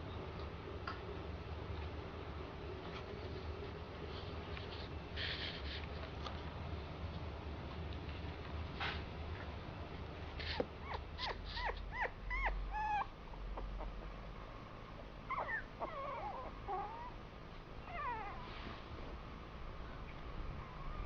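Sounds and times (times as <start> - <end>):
puppies whimpering: 10.8 - 14.1, 15.3 - 17.2.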